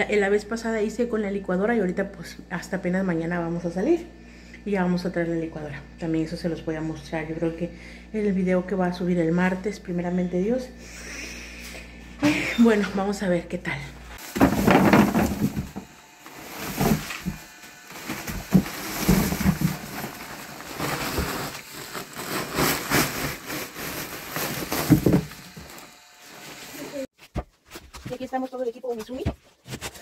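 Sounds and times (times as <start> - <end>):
corn ears knocking together: 14.2 - 16.0, 16.6 - 23.4, 24.4 - 25.7
plastic sack rustling: 14.2 - 27.1.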